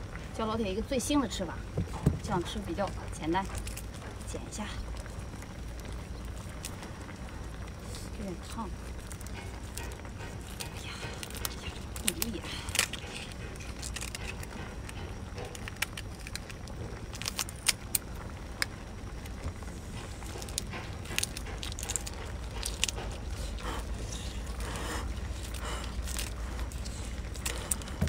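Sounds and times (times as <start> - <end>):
steady low rumble: 0.0 - 28.0
scissors crunching through shell: 9.1 - 18.0, 20.3 - 28.0.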